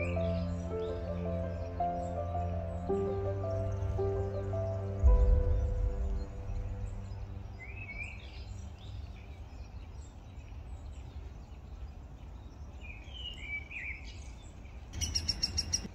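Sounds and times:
low background rumble: 0:00.0 - 0:11.1
birds chirping: 0:00.0 - 0:15.9.

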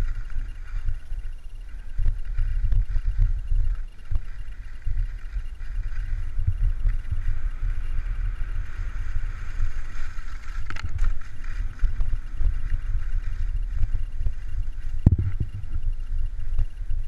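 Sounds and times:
wind buffeting microphone: 0:00.0 - 0:17.0
skis hissing on snow: 0:07.2 - 0:14.4.

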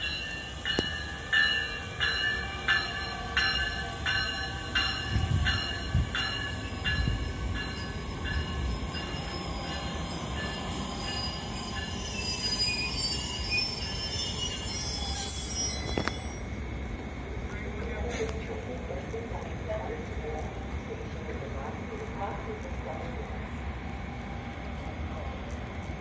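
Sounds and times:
ringing clicks of train wheels: 0:00.0 - 0:18.4
train rumble: 0:00.0 - 0:26.0
thin high whine: 0:09.0 - 0:16.8.

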